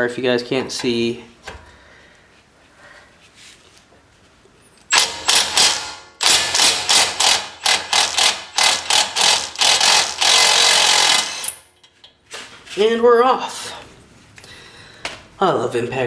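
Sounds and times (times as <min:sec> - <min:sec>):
impact wrench hammering: 0:04.9 - 0:11.7.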